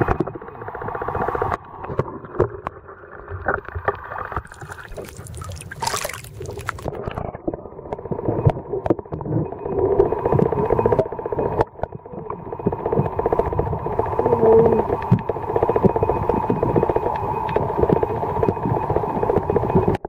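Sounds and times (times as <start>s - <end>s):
seawater sloshing and splashing: 4.4s - 7.0s.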